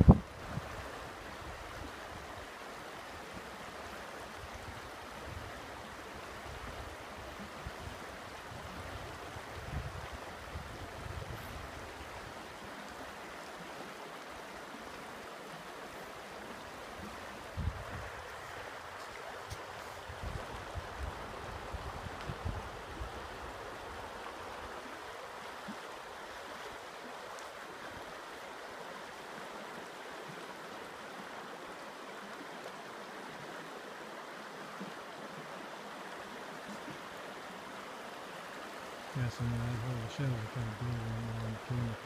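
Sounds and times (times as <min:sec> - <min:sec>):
creek rushing over rocks: 0:00.0 - 0:42.0.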